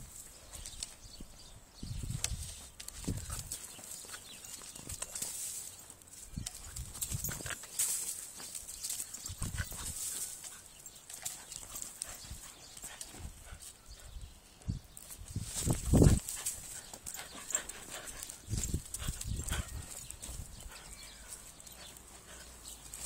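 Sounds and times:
rustling dry leaves: 2.3 - 12.5.

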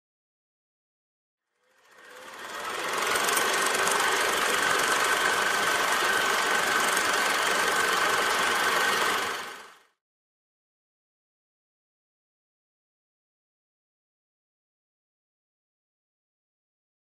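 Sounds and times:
mechanical whirring rattle: 1.5 - 9.9.

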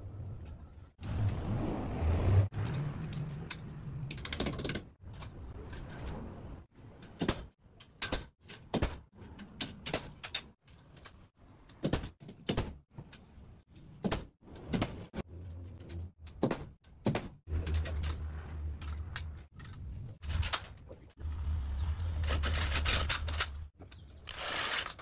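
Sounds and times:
metallic clicks and knocks: 2.6 - 6.2, 6.8 - 21.2.

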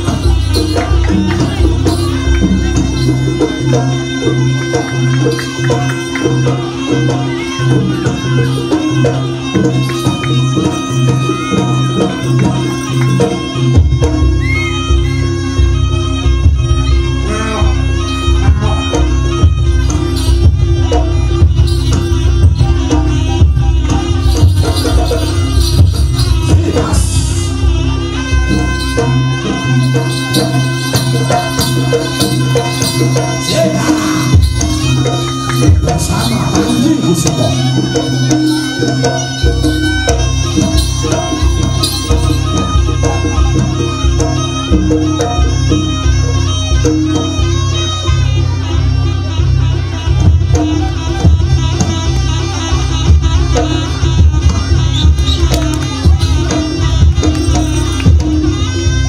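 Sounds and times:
held high note: 0.0 - 15.4, 18.0 - 44.7
drums and percussion beat: 0.0 - 59.0
sustained pitched instrument tones: 0.0 - 59.0
low sustained tone: 18.6 - 45.3.

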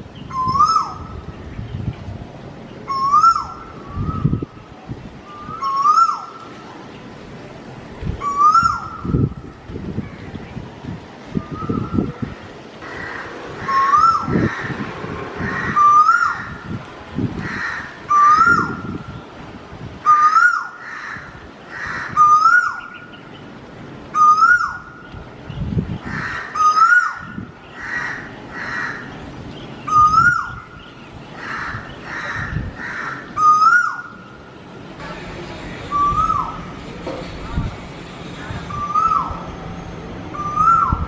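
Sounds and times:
peacock calling: 0.3 - 1.1, 2.8 - 4.5, 5.2 - 6.5, 8.2 - 10.3, 11.4 - 16.8, 17.4 - 19.0, 20.0 - 23.2, 24.1 - 25.1, 26.0 - 41.0.

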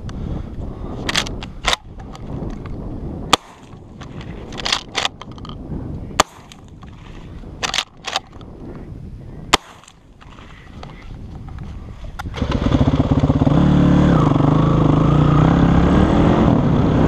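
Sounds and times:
dirt bike engine running low: 0.0 - 17.0
shotgun lever clacking: 1.0 - 2.8, 3.4 - 8.5
shotgun shots: 3.3 - 5.2, 6.2 - 6.8, 9.5 - 10.1.

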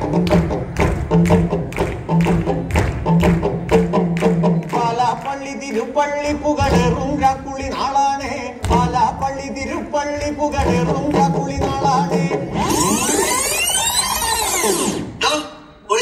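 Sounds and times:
steady drum beat: 0.0 - 5.2, 6.1 - 13.4.

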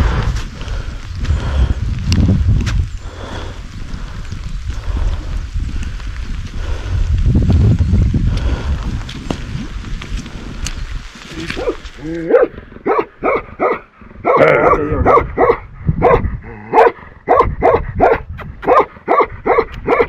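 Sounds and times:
dog barking: 11.6 - 20.0.

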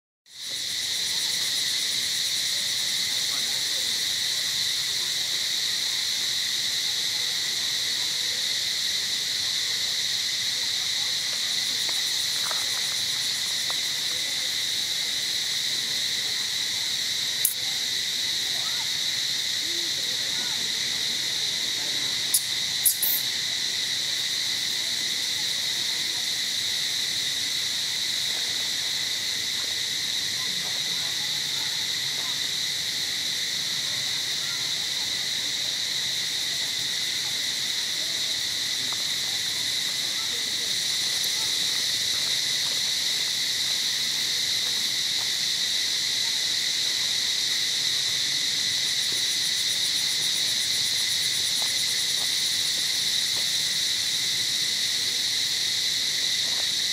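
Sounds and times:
insects buzzing: 0.3 - 56.9
higher insect buzz: 21.7 - 23.6.

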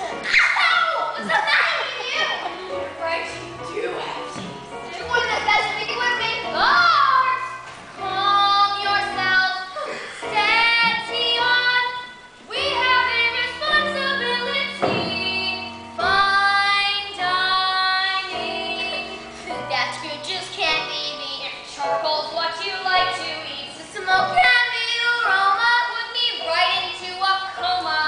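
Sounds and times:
instrumental accompaniment: 1.2 - 28.0
woman and child singing: 5.7 - 28.0.

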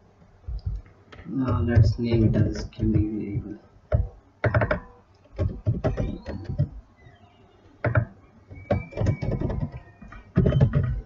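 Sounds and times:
computer keyboard typing: 1.4 - 6.8, 7.8 - 11.0.

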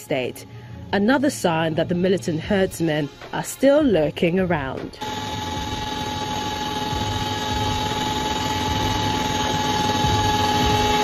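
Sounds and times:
helicopter turbine engine whine: 5.0 - 11.0
rotor and airflow noise: 5.0 - 11.0.

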